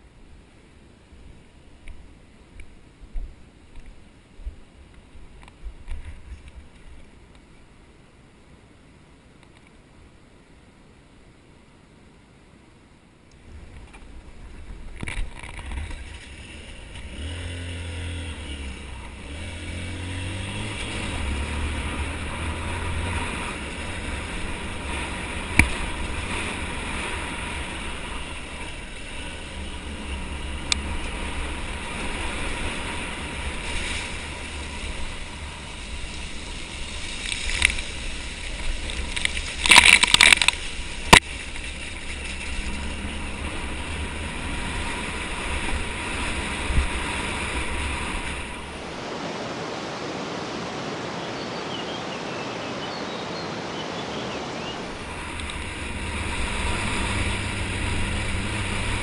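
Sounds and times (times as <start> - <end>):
motorcycle engine: 14.5 - 49.0, 54.8 - 59.0.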